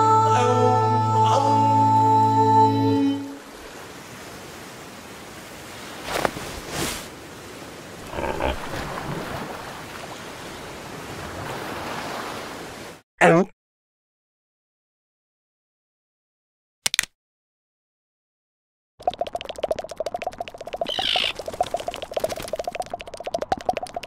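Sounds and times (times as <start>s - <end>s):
wind: 0.0s - 13.4s, 19.0s - 24.0s
soft waves: 1.4s - 13.0s.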